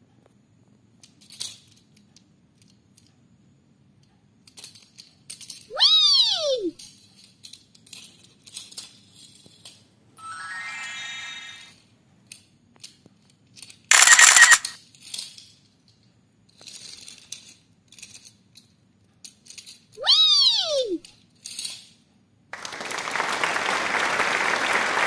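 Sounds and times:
toy trains clicking on plastic track: 0:01.0 - 0:03.2, 0:03.9 - 0:05.7, 0:06.8 - 0:11.6, 0:12.2 - 0:20.0, 0:21.0 - 0:22.0
loud bright sound effect: 0:10.2 - 0:11.7
rising tone effect: 0:10.2 - 0:11.7.

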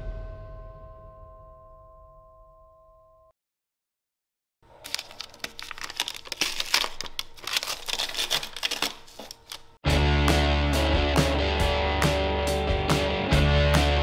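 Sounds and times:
paper and tape peeling and crinkling: 0:04.7 - 0:09.8
guitar music: 0:09.8 - 0:14.0.

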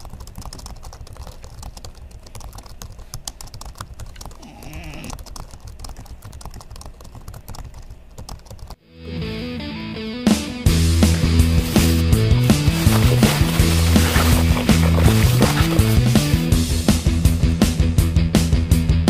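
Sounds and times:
typing on computer keyboard: 0:00.0 - 0:08.8
dog yawning: 0:04.4 - 0:05.2
music: 0:08.8 - 0:19.0.

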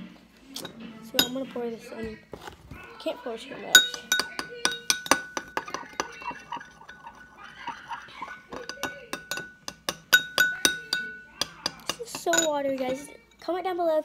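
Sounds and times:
metal spoon clinking on glass bowl: 0:00.6 - 0:01.6, 0:03.7 - 0:13.5.

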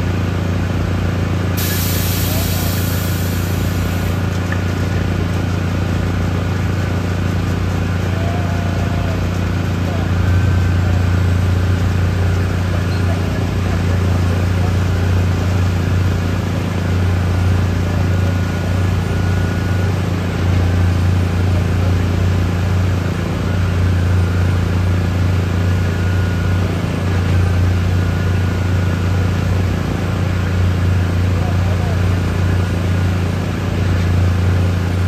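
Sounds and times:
diesel engine droning: 0:00.0 - 0:35.0.

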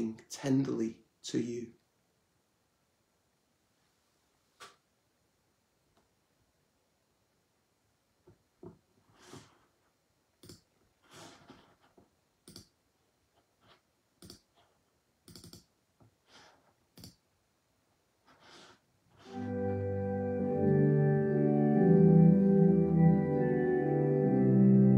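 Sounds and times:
church music sustained chord: 0:19.3 - 0:24.9.

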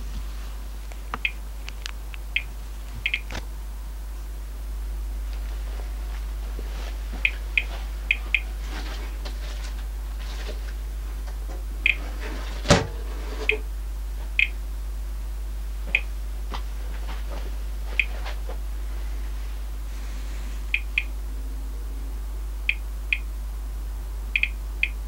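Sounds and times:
survey meter count chirps: 0:01.2 - 0:01.5, 0:02.3 - 0:03.3, 0:07.2 - 0:08.5, 0:11.8 - 0:12.0, 0:14.4 - 0:14.6, 0:15.9 - 0:16.1, 0:20.7 - 0:23.4, 0:24.3 - 0:25.0.

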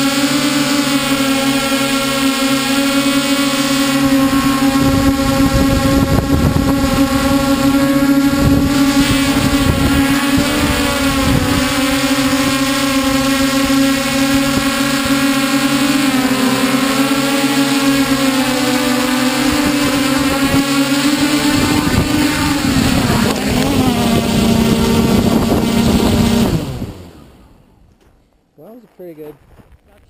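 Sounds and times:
drone motors whirring: 0:00.0 - 0:28.2
wind buffeting microphone: 0:03.9 - 0:15.3, 0:19.4 - 0:27.1.

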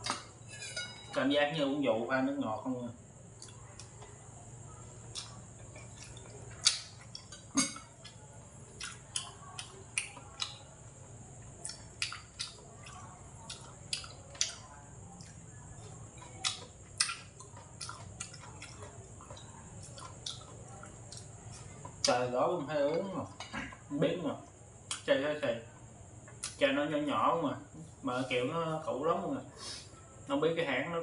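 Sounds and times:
faint steady hiss: 0:00.0 - 0:31.0
man chewing and smacking: 0:05.0 - 0:10.6, 0:11.6 - 0:22.2.

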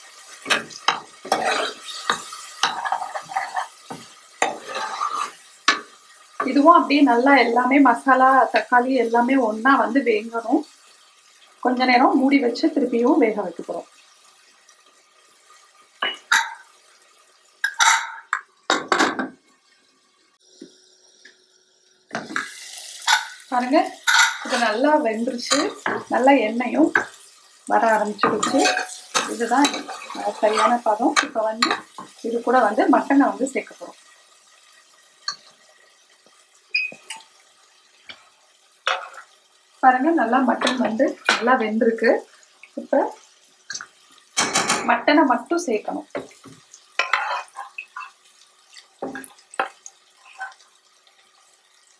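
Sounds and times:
metal pots clinking and knocking: 0:16.0 - 0:16.7, 0:17.6 - 0:19.4, 0:22.1 - 0:24.6, 0:28.2 - 0:32.1, 0:38.9 - 0:39.3, 0:43.7 - 0:45.0, 0:47.0 - 0:48.2.

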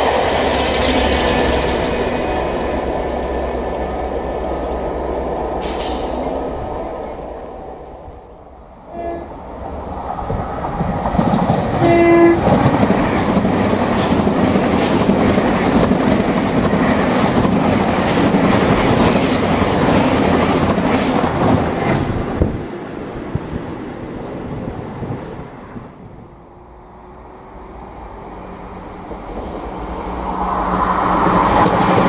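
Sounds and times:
train rushing past: 0:00.0 - 0:32.0
train horn blast: 0:08.8 - 0:09.4, 0:11.8 - 0:12.6.

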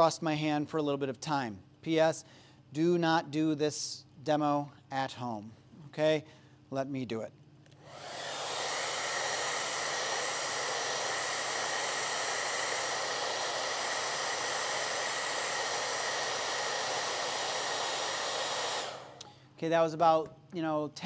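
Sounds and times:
hair dryer blowing: 0:07.8 - 0:19.3.

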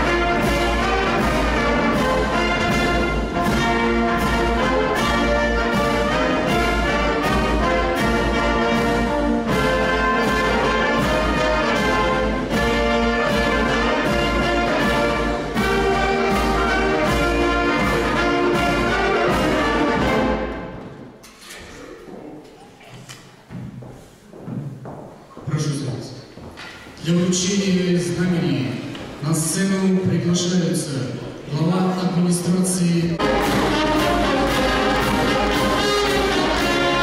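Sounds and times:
steady drum beat: 0:00.0 - 0:20.6, 0:33.2 - 0:37.0
brass band playing slow march: 0:00.0 - 0:21.2, 0:33.2 - 0:37.0.

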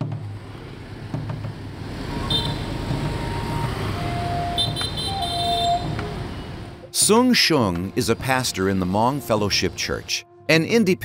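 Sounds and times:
motorbike and scooter traffic: 0:00.0 - 0:06.9
short horn beeps: 0:02.3 - 0:02.7, 0:04.2 - 0:06.6.

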